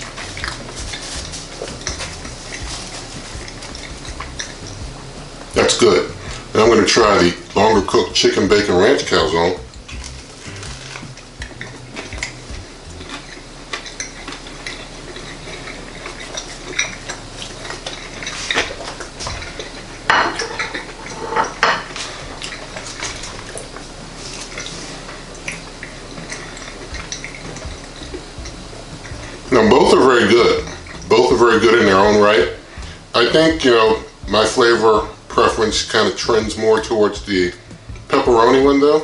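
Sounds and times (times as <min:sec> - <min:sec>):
cutlery scraping on a plate: 0:13.2 - 0:23.2.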